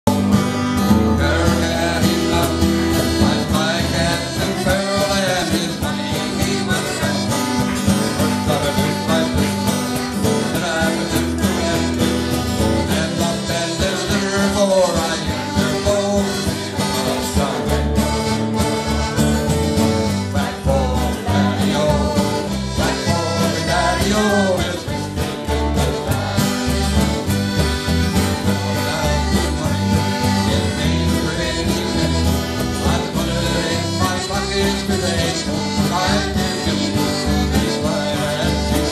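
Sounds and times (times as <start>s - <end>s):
accordion: 0.0s - 38.9s
electric bass: 0.0s - 38.9s
strummed acoustic guitar: 0.0s - 38.9s
cajon beat: 0.1s - 38.9s
man singing: 0.1s - 38.9s.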